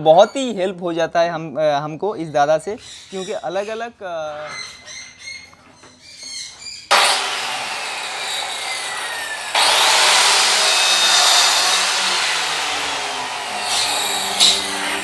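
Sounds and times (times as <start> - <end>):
circular saw cutting wood: 6.9 - 15.0.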